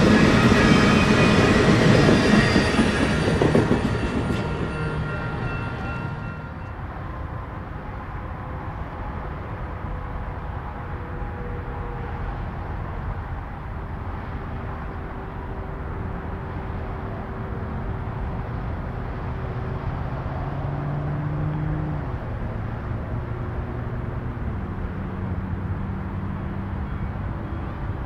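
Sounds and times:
moving vehicle running noise: 12.2s - 28.0s.

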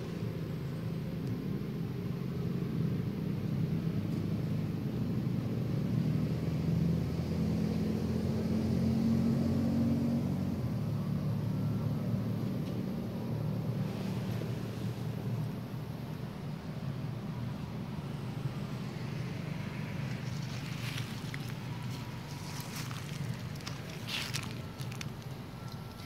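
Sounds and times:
low engine rumble: 10.0s - 26.0s.

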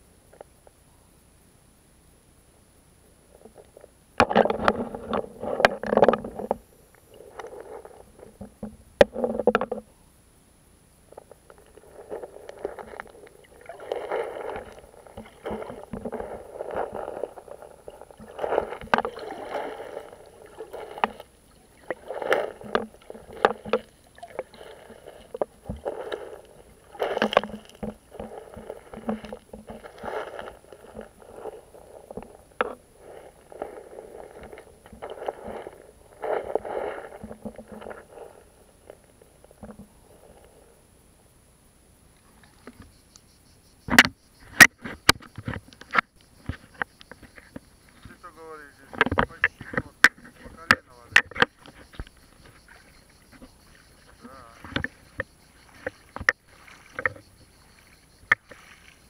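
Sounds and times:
stones crunching underwater: 3.4s - 9.9s, 11.1s - 40.6s, 43.9s - 59.0s
water sloshing: 11.1s - 40.8s, 44.8s - 59.0s.

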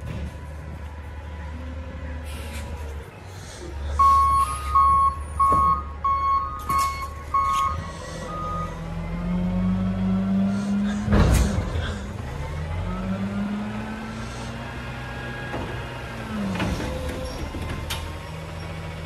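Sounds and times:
truck engine running: 0.0s - 19.0s
truck backup alarm beeping: 3.9s - 10.1s, 12.4s - 13.9s.

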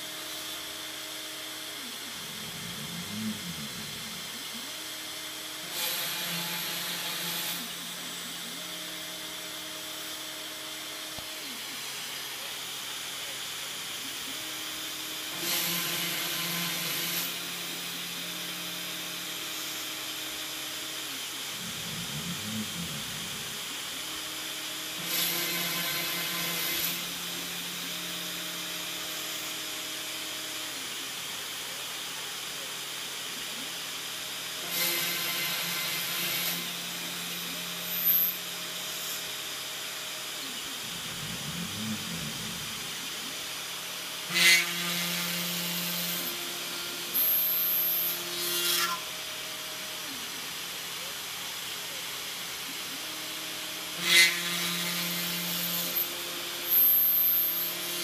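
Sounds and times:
machine moving hum: 0.0s - 11.8s, 14.0s - 31.0s, 34.6s - 50.2s
bit cutting into board: 1.8s - 10.2s, 20.5s - 30.9s, 34.5s - 49.3s.

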